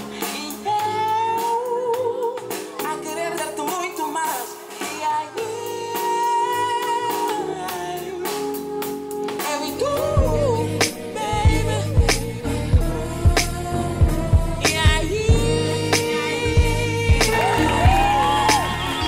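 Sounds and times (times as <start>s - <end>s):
drum kit: 0.0s - 19.0s
keyboard: 0.0s - 19.0s
person singing long notes: 9.5s - 19.0s
electric bass: 9.8s - 19.0s.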